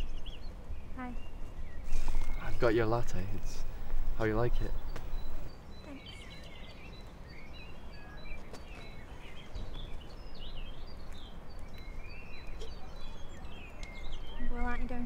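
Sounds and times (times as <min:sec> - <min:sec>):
low background rumble: 0:00.0 - 0:05.6
small birds chirping: 0:00.0 - 0:15.0.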